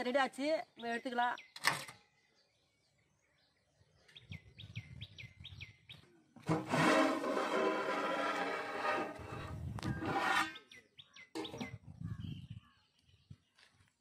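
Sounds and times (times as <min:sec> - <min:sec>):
bird chirping: 0:00.0 - 0:06.2, 0:09.8 - 0:13.8
metal pot lid scraping and ringing: 0:06.5 - 0:10.6.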